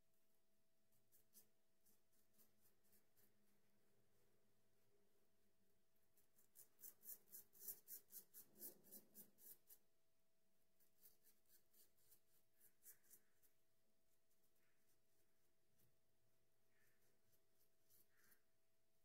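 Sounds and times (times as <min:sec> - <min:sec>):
razor scraping stubble: 0:06.4 - 0:09.8.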